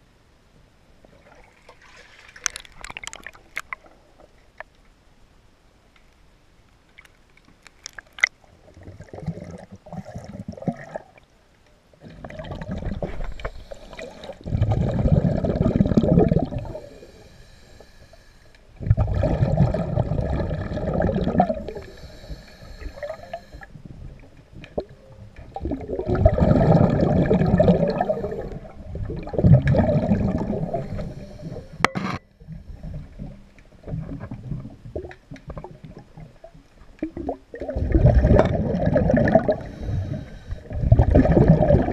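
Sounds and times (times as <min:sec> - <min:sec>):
exhaled bubbles rumbling underwater: 0:08.2 - 0:17.3, 0:18.7 - 0:41.9
diver inhaling hiss: 0:13.2 - 0:14.4, 0:16.6 - 0:18.6, 0:21.7 - 0:23.7, 0:30.6 - 0:31.8, 0:39.6 - 0:40.8.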